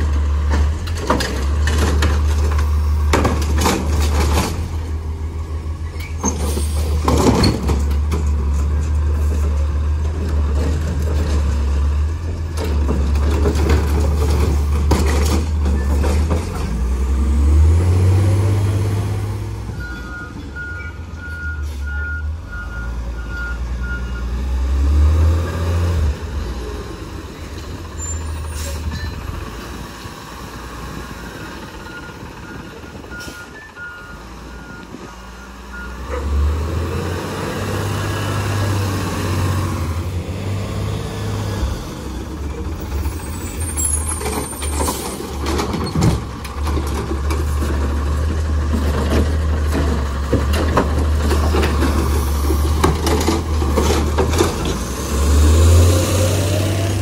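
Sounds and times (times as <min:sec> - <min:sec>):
garbage truck engine rumbling: 0:00.0 - 0:57.0
reversing alarm beeping: 0:19.8 - 0:24.4
air brakes hissing: 0:28.1 - 0:28.9.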